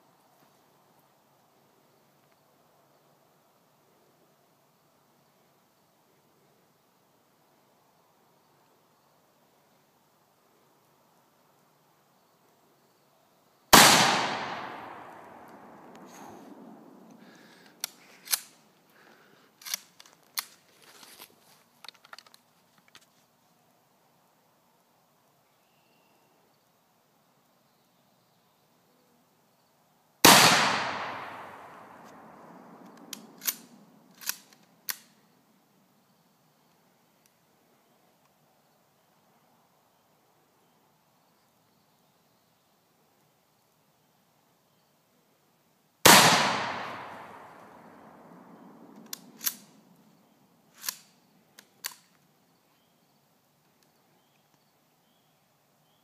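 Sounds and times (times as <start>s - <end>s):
rifle shot echoing: 13.7s - 16.5s, 30.2s - 33.6s, 46.0s - 49.6s
rifle bolt clicking and clacking: 17.8s - 18.5s, 19.6s - 20.6s, 32.9s - 35.1s, 49.0s - 49.7s, 50.8s - 52.2s.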